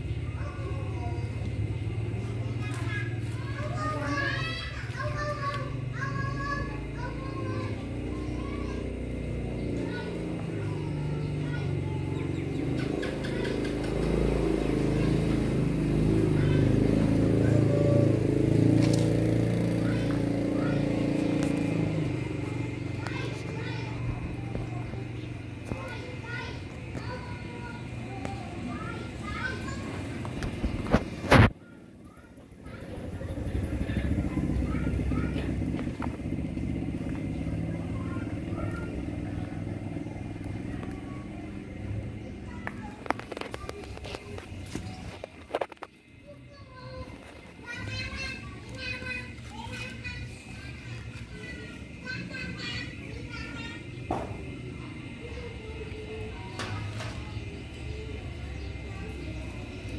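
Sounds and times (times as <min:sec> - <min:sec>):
motor engine running: 0:00.0 - 0:59.9.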